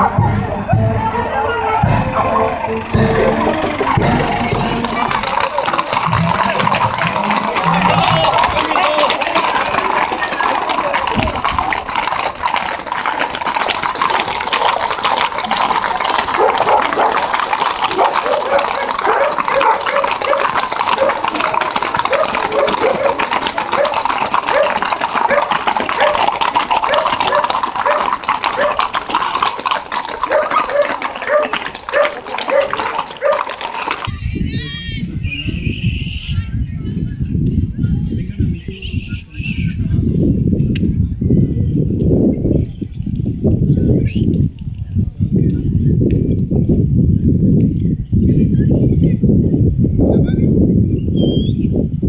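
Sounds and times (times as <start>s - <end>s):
horse hooves clopping on asphalt: 0.0s - 34.8s, 41.9s - 48.0s.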